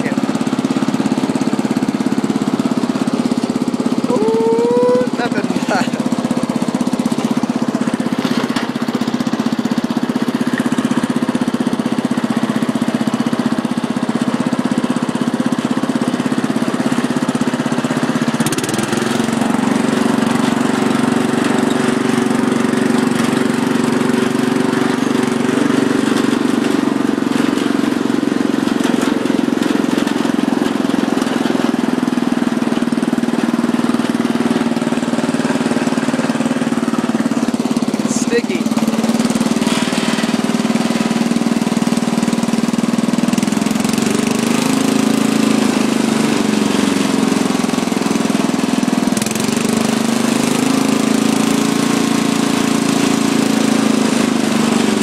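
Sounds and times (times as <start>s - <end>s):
riding lawn mower engine running: 0.0s - 55.0s.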